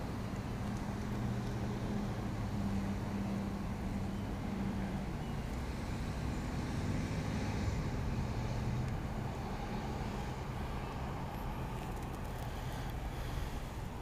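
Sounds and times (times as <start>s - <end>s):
engine hum: 0.0s - 14.0s
road traffic rumble: 0.0s - 14.0s.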